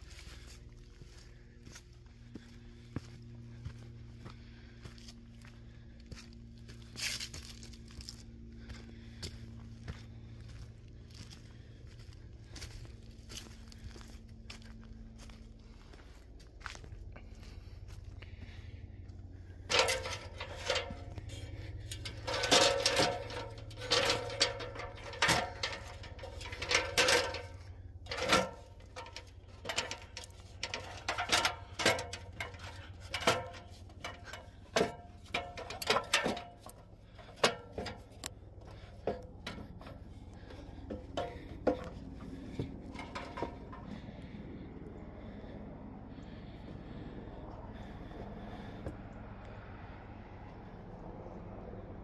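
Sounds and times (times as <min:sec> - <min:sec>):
low steady hum: 0:00.0 - 0:52.0
metallic knocks and clanks: 0:19.6 - 0:44.2.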